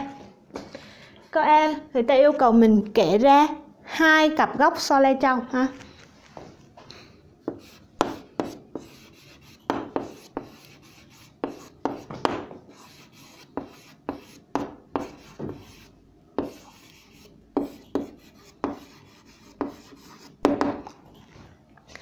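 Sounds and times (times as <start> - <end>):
pen scratching on paper: 7.5 - 20.5.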